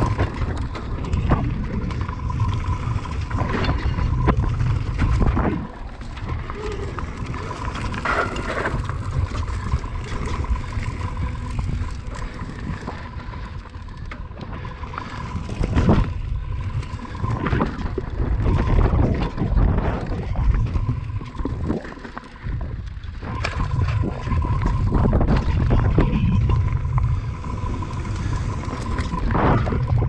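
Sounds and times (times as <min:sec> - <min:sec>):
thin steady whine: 0:00.0 - 0:30.0
wind rumbling on microphone: 0:00.0 - 0:30.0.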